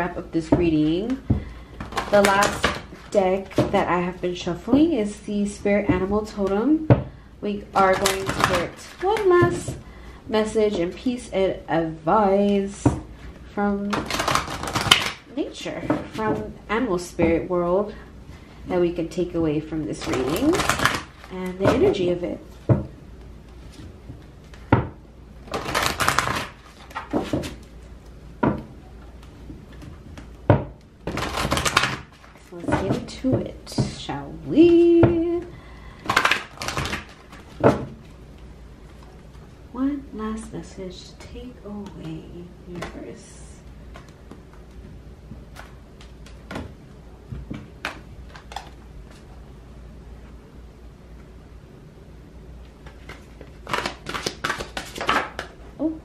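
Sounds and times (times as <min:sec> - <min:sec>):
low steady hum: 0:00.0 - 0:56.0
cards riffling and slapping: 0:13.9 - 0:15.2, 0:25.4 - 0:27.7, 0:31.0 - 0:32.6, 0:36.0 - 0:37.6, 0:52.8 - 0:55.6.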